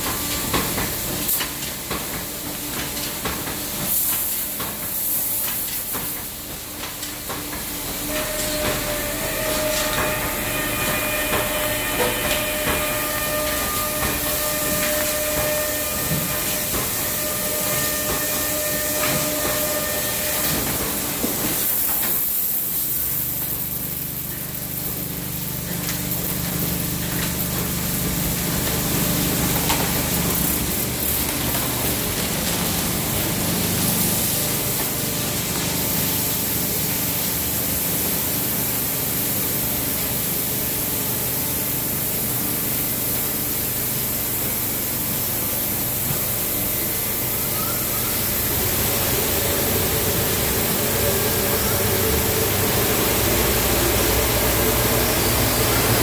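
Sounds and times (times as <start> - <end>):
steady machine hum: 7.7 - 21.4, 22.8 - 38.1, 40.6 - 56.0.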